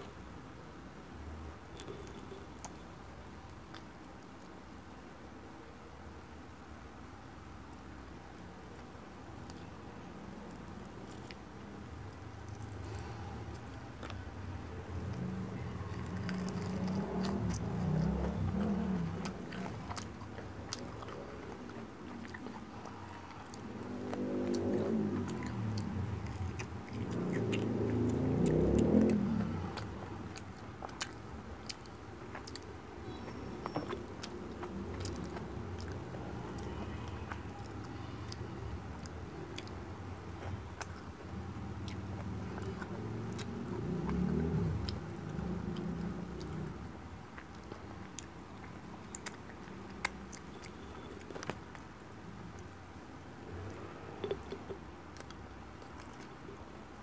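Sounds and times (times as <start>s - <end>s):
soft eating clicks and squishes: 1.5s - 5.7s, 7.0s - 57.0s
person chewing food: 1.7s - 4.5s, 8.7s - 57.0s
wet mouth clicks and smacks: 53.7s - 56.5s.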